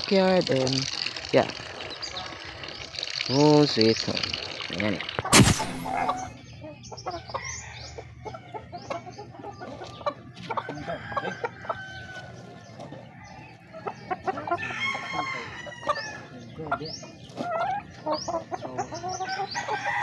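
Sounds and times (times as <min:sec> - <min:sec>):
chickens clucking: 0:00.1 - 0:20.0
rooster crowing: 0:14.6 - 0:16.2, 0:19.6 - 0:20.0.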